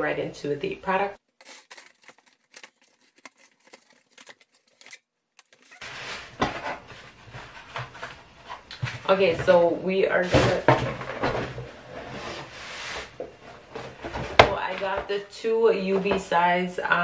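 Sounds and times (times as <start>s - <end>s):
cardboard and plastic rustling: 1.2s - 9.2s
scissors slicing packing tape: 1.4s - 5.8s.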